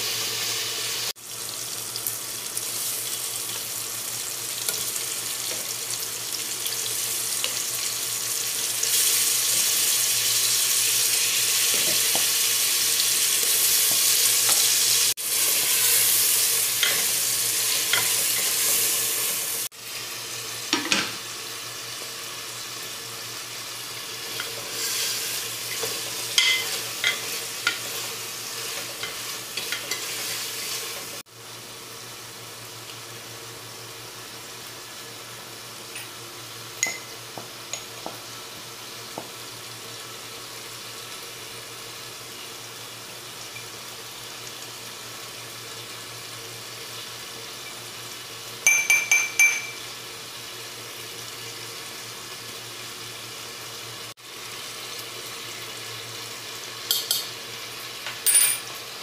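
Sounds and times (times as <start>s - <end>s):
chicken sizzling in oil: 0.0s - 59.0s
ringing taps against pot: 36.8s - 37.1s, 48.6s - 49.8s.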